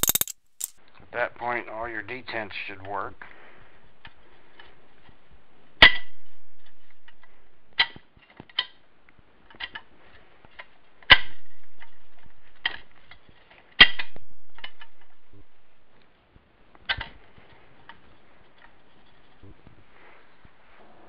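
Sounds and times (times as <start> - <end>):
sharp metallic clicks: 0.0 - 0.8.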